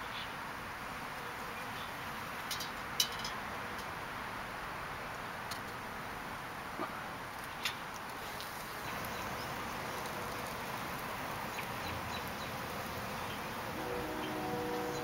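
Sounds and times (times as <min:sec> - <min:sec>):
bees buzzing: 0:08.2 - 0:15.0
wind hissing: 0:08.2 - 0:15.0.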